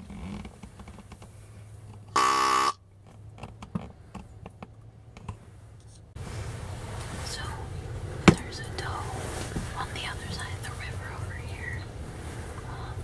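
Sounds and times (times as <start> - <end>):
deer grunt call: 2.2 - 2.8.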